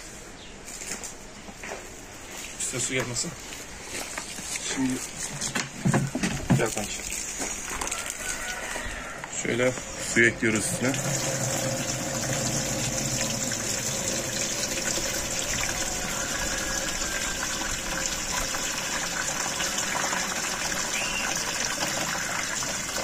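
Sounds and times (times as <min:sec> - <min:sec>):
water pouring into plastic tank: 0:05.8 - 0:08.7, 0:10.1 - 0:23.0
water splashing: 0:06.0 - 0:08.7, 0:10.1 - 0:23.0.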